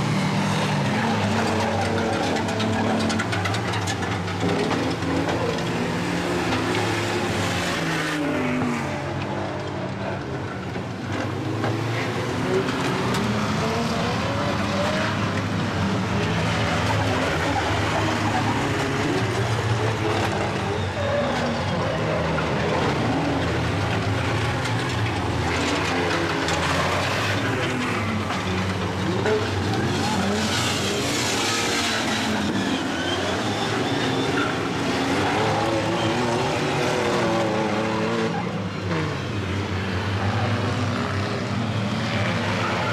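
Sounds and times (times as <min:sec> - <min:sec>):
van engines revving: 0:10.1 - 0:42.9.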